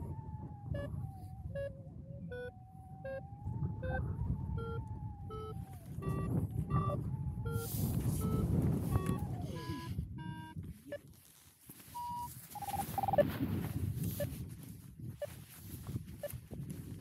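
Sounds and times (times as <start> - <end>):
variometer beeping: 0.0 - 11.0, 12.0 - 13.3
wind noise on microphone: 0.0 - 17.0.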